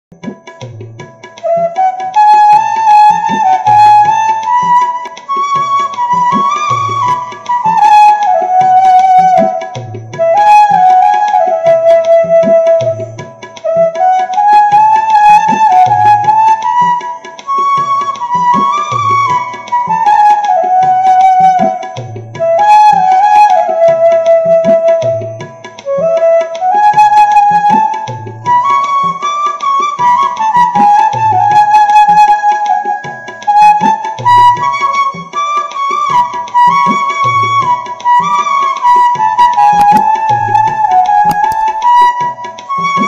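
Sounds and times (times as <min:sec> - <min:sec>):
drum beat: 0:00.1 - 0:01.7, 0:02.8 - 0:13.8, 0:27.2 - 0:29.2, 0:36.0 - 0:43.0
bamboo flute melody: 0:00.2 - 0:43.0.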